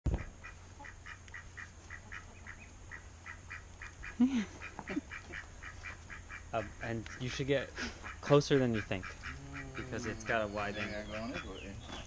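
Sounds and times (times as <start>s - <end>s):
duck quacking: 0.2s - 11.8s
high chirping: 9.1s - 12.0s.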